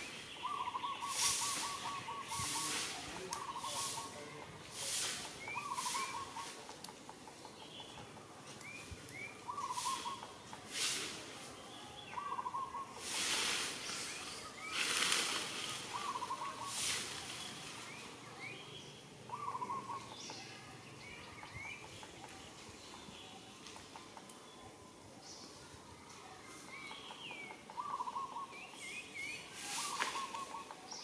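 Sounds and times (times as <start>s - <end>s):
bird warbled call: 0.0s - 6.7s, 9.4s - 10.5s, 12.1s - 13.5s, 14.6s - 17.4s, 19.3s - 20.2s, 27.6s - 31.0s
rustling noise bursts: 1.0s - 3.1s, 13.0s - 18.1s, 29.6s - 30.5s.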